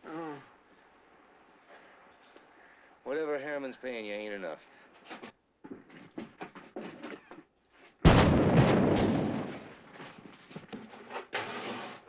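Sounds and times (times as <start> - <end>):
dynamite explosion bang: 8.0 - 9.8.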